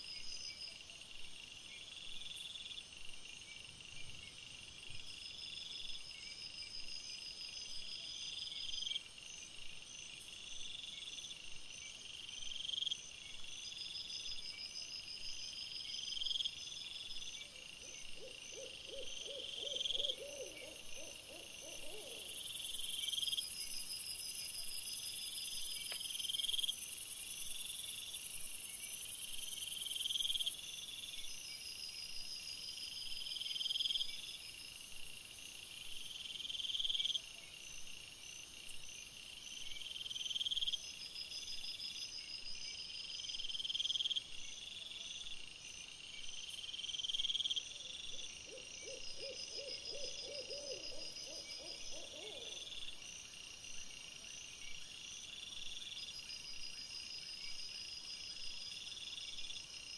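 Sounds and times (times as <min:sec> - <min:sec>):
insects chirping: 0:00.0 - 0:59.9.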